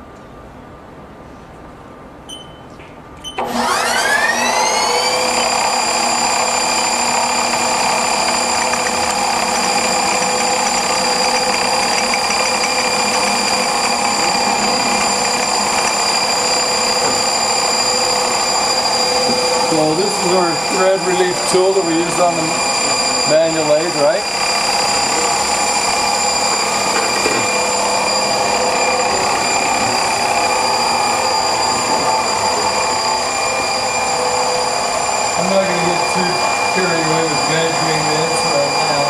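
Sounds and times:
short beeps: 2.3s - 3.4s
lathe spindle whine: 3.4s - 39.0s.

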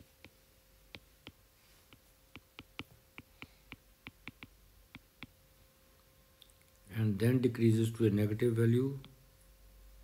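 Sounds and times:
stylus tapping on glass screen: 0.2s - 5.4s.

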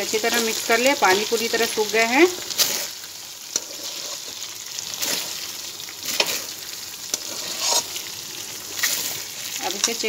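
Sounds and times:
dumplings sizzling in oil: 0.0s - 10.0s
metal spatula scraping pan: 2.5s - 8.1s.

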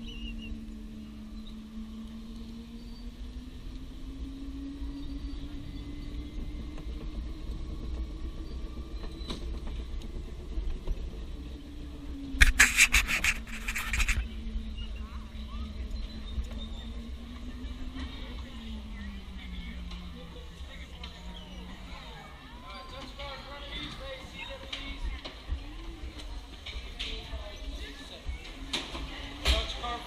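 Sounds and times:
go-kart engine running: 0.0s - 30.0s
loud crackling noise: 12.2s - 14.2s.

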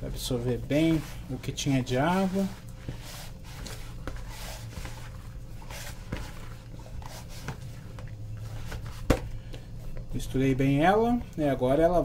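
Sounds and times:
hand squishing dough in bowl: 0.0s - 11.2s.

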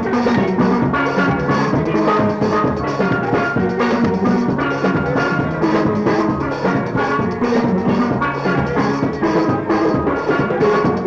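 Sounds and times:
band music with drums: 0.0s - 11.0s.

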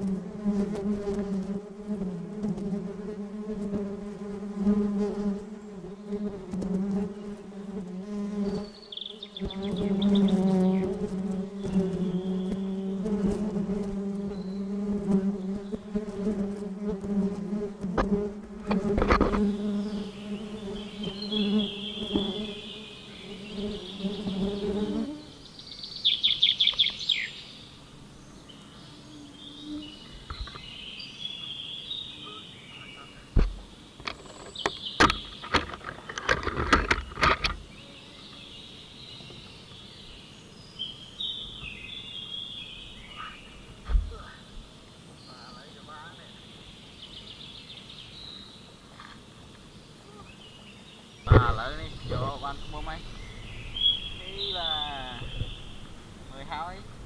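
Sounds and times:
honeybees buzzing: 0.0s - 57.0s
sharp knocks: 33.4s - 37.6s, 51.3s - 52.4s.

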